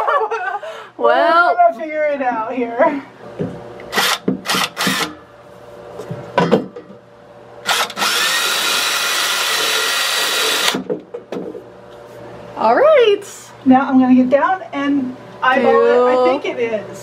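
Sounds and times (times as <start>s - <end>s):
cordless drill whining: 7.6s - 10.8s.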